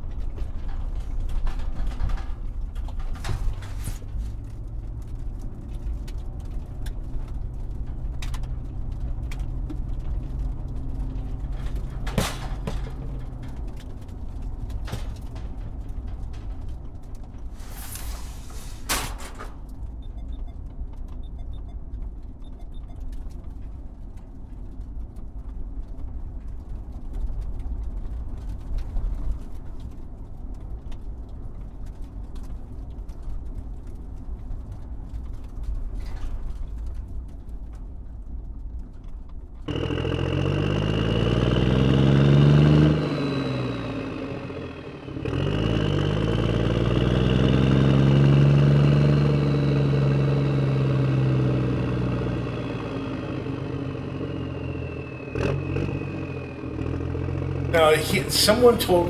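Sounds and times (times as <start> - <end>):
low rumbling: 0.0 - 59.0
motor engine revving: 39.7 - 59.0.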